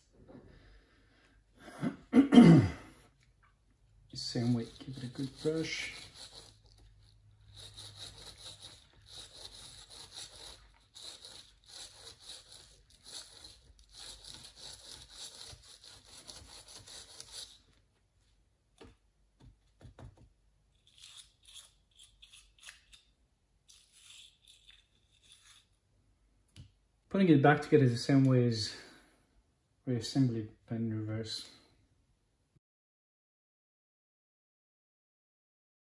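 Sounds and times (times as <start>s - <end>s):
toothbrush scrubbing fan blades: 4.2s - 17.6s, 23.7s - 25.7s.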